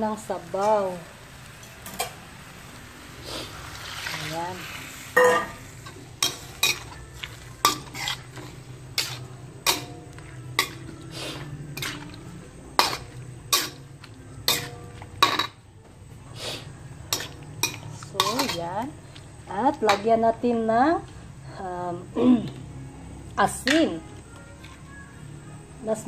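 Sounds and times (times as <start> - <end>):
metal spoon scraping wok: 3.1 - 15.6, 16.3 - 20.2.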